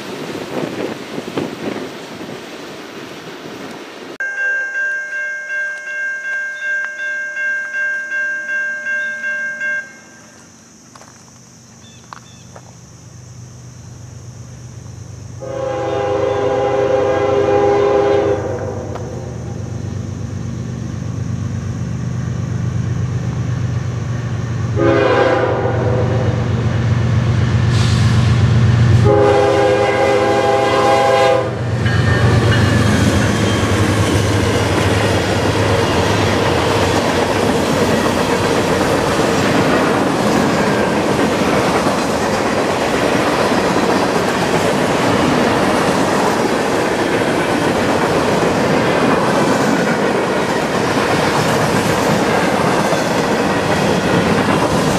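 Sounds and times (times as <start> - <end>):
locomotive engine rumble: 10.4 - 54.9
locomotive horn blasts: 15.4 - 19.2, 24.8 - 26.5, 29.0 - 33.8.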